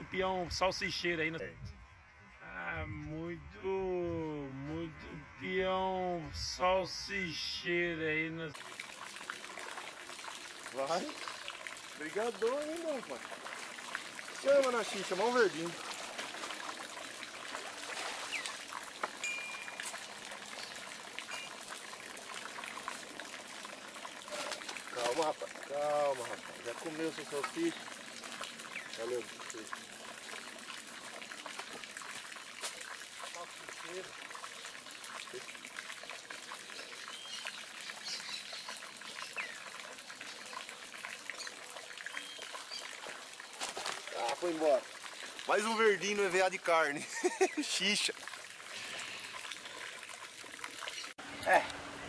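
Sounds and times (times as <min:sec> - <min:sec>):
water trickling and splashing: 0:00.0 - 0:52.0.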